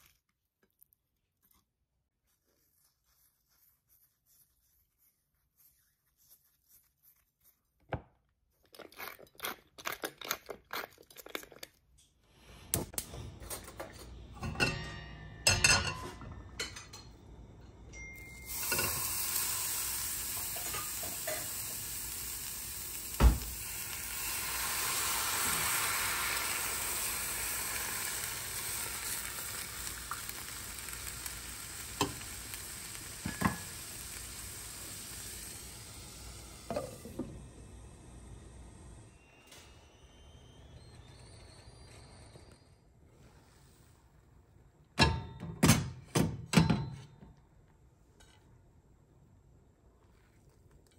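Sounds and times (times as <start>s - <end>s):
pan and utensils clattering: 13.3s - 17.2s, 18.0s - 19.2s, 20.3s - 21.8s, 33.1s - 34.1s
water sizzling in hot skillet: 18.4s - 37.2s.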